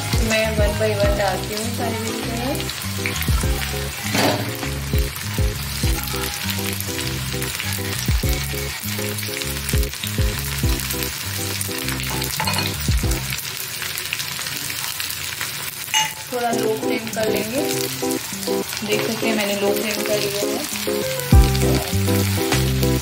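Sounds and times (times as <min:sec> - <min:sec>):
background music: 0:00.0 - 0:13.4, 0:16.3 - 0:23.0
vegetables sizzling in oil: 0:00.0 - 0:23.0.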